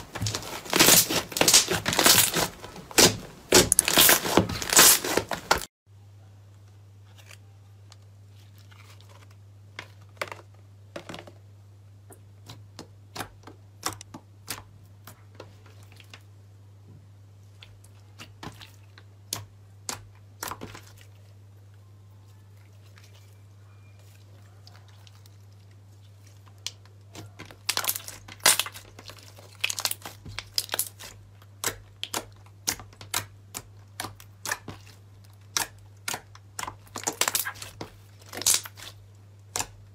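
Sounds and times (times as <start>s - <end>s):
slime crackling and popping: 0.0s - 5.7s, 26.2s - 39.9s.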